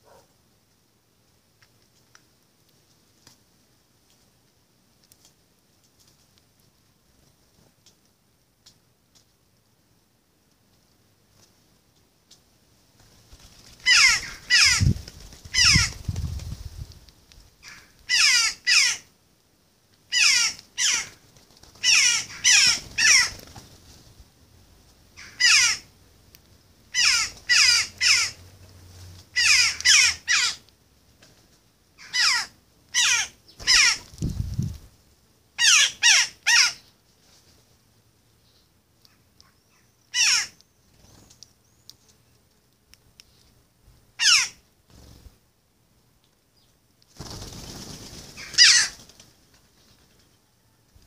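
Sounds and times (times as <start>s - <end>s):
jackdaw calling: 13.8s - 16.0s, 17.6s - 19.1s, 20.1s - 21.2s, 21.8s - 23.4s, 25.2s - 25.9s, 26.9s - 28.4s, 29.4s - 30.7s, 32.0s - 34.1s, 35.6s - 36.9s, 39.1s - 40.7s, 44.2s - 44.6s, 48.4s - 49.0s.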